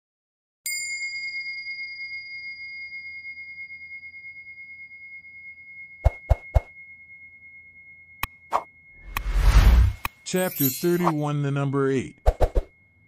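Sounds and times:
high bell ding: 0.7 - 9.2, 10.2 - 11.4.

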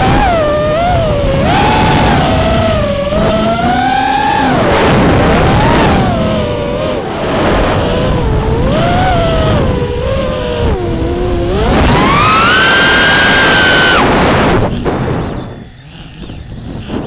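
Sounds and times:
drone motors whining: 0.0 - 17.0
wind rumble: 0.0 - 17.0.

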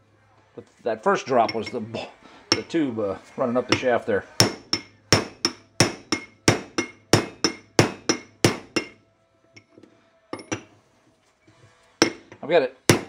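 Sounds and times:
hammer striking metal bolt: 3.7 - 9.0, 10.4 - 10.8, 12.0 - 13.0.

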